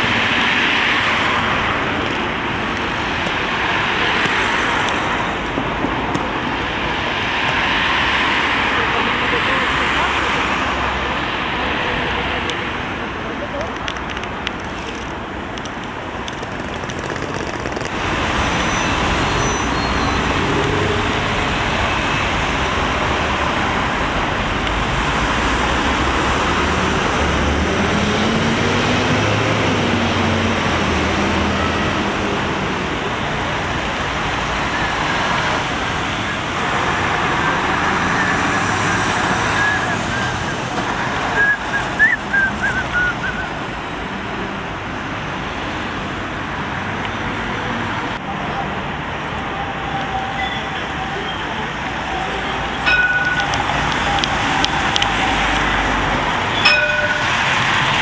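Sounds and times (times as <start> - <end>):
tram rolling and motor noise: 0.0 - 58.0
wheels squealing on curve: 16.4 - 22.8, 35.0 - 43.6, 49.4 - 58.0.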